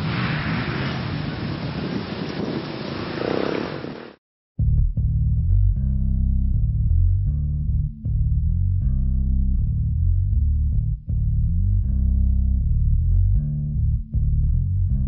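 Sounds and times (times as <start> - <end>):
bass and guitar music: 4.6 - 15.0.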